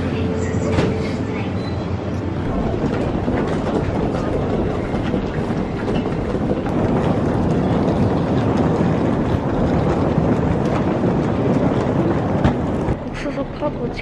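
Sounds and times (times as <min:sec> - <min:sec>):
suitcase wheels rolling on tiles: 0:02.4 - 0:13.1.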